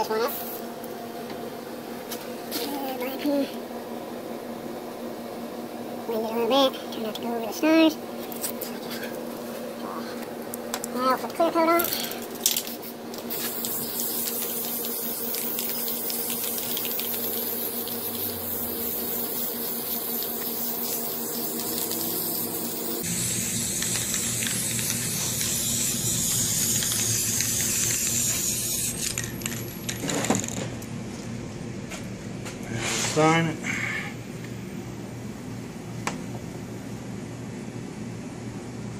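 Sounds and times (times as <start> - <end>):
steady low hum: 0.0 - 38.9
spray paint can hissing: 12.4 - 30.6.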